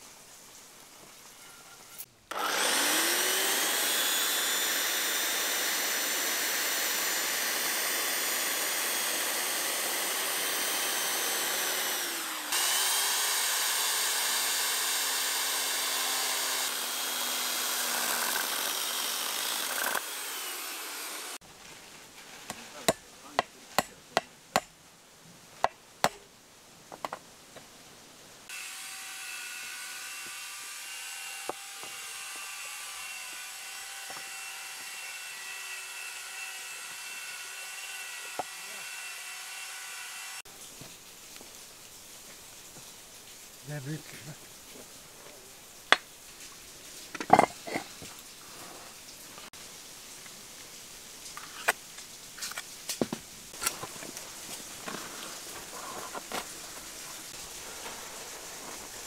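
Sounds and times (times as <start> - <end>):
electric chainsaw cutting wood: 2.3 - 21.4, 28.5 - 40.5.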